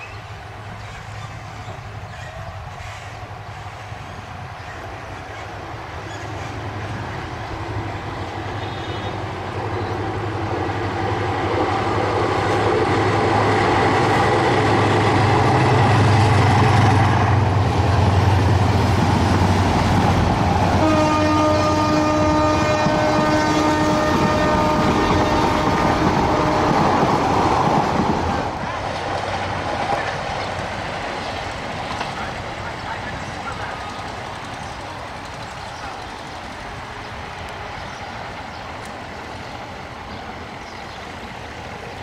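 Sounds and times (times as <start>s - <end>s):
diesel locomotive engine drone: 0.0s - 42.0s
train horn long note: 8.5s - 9.3s, 20.7s - 27.0s.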